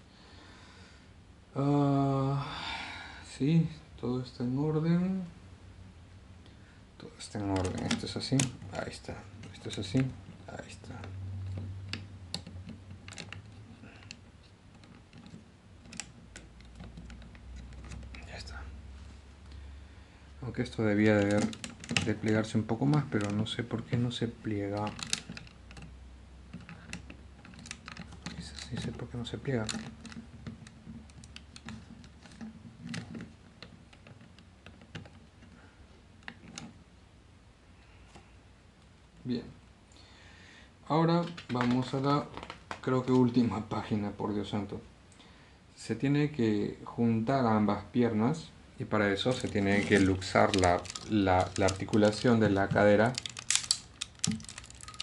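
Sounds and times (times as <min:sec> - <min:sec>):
plastic parts clicking and clacking: 0:07.4 - 0:18.3, 0:20.9 - 0:25.9, 0:26.5 - 0:35.6, 0:36.2 - 0:36.8, 0:49.1 - 0:55.0
toy figure joints clicking: 0:21.1 - 0:23.4, 0:24.7 - 0:25.9, 0:49.2 - 0:55.0.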